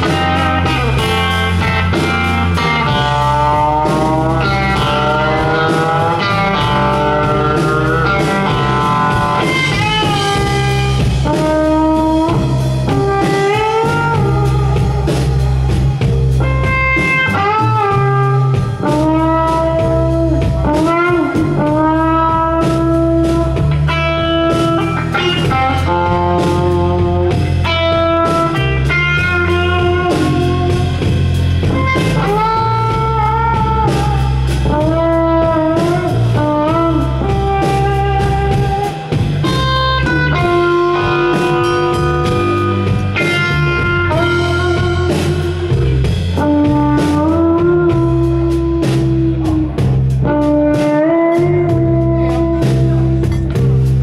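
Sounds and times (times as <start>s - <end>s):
bass guitar: 0.0s - 54.0s
drum kit: 0.0s - 54.0s
electric guitar playing blues: 0.0s - 54.0s.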